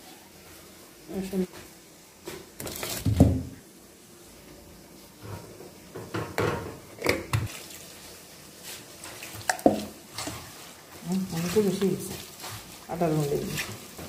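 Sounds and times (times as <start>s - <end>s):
hand mixing food: 7.5s - 14.0s.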